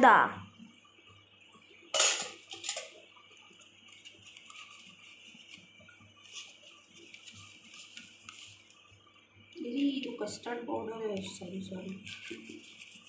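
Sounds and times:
kitchen utensils clicking: 0:02.0 - 0:03.0.

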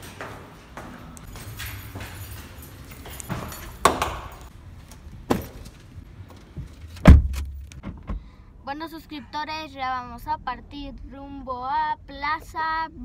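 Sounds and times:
footsteps: 0:00.0 - 0:07.8
car door shutting: 0:07.0 - 0:08.3.

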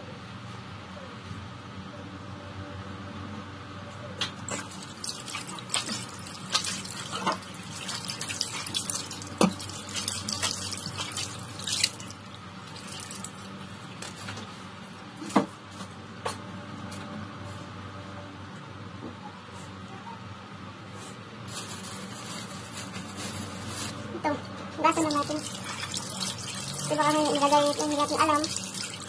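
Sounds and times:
water dripping and splashing: 0:04.5 - 0:13.5, 0:25.0 - 0:29.0.

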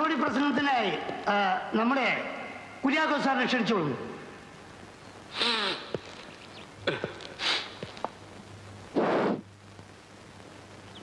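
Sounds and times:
faint steady hum: 0:00.0 - 0:11.0
loud rush of breath: 0:05.3 - 0:06.0, 0:07.4 - 0:07.8
man sniffing: 0:05.3 - 0:06.0, 0:07.0 - 0:07.9.

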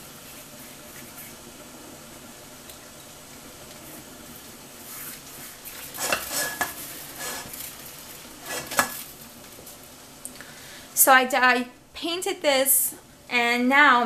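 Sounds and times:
boiling water hissing: 0:00.0 - 0:14.0
light sizzle: 0:00.0 - 0:14.0
brush scrubbing on pan: 0:00.2 - 0:01.5, 0:04.8 - 0:07.7.

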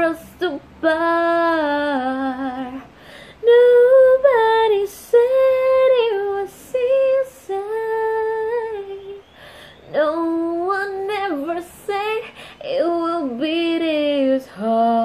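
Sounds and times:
woman singing wordless notes: 0:00.0 - 0:15.0
singer breathing: 0:02.9 - 0:03.4, 0:09.3 - 0:09.9, 0:12.2 - 0:12.6.

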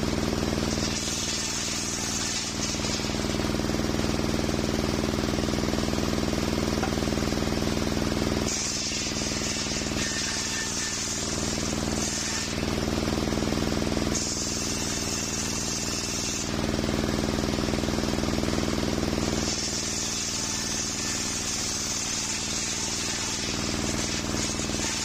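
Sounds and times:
saw blade cutting wood: 0:00.0 - 0:04.6, 0:06.2 - 0:13.1, 0:14.1 - 0:16.6, 0:19.2 - 0:25.0
saw bench drive hum: 0:01.8 - 0:15.5.

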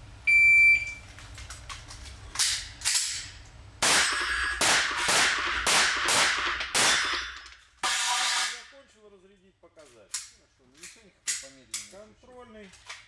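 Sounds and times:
handgun shots: 0:03.8 - 0:08.6
gunshot reports ringing indoors: 0:03.8 - 0:08.8.

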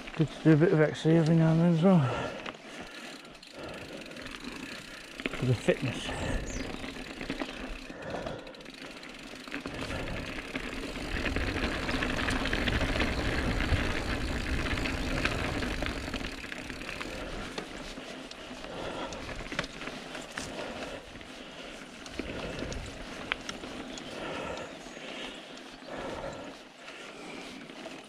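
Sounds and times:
bike clicks and rattles: 0:00.0 - 0:28.0
tyres rolling over dirt and stones: 0:03.7 - 0:24.3.

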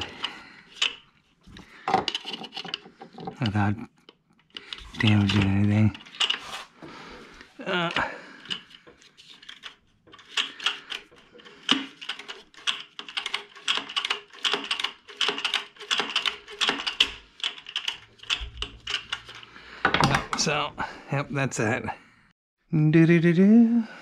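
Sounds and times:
hand tools clicking and clattering: 0:00.0 - 0:06.5, 0:08.4 - 0:20.5.

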